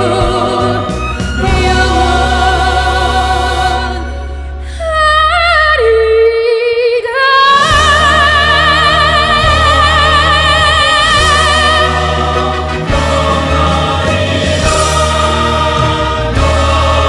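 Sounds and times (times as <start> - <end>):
woman singing operatically: 0.0 - 12.2
recorded accompaniment: 0.0 - 17.0.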